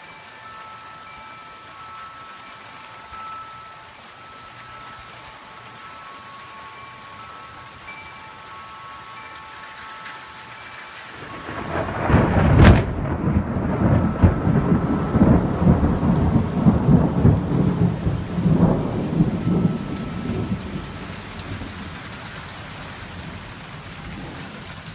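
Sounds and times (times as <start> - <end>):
rain falling: 0.0 - 24.9
thunder rumbling: 11.1 - 24.9
thunderclap: 11.2 - 20.8.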